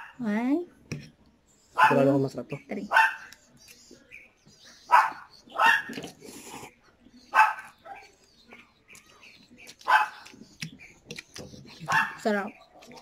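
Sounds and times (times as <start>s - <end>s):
dog barking: 1.8s - 2.1s, 2.9s - 3.3s, 4.9s - 6.0s, 7.3s - 8.1s, 9.8s - 10.3s, 11.9s - 12.2s.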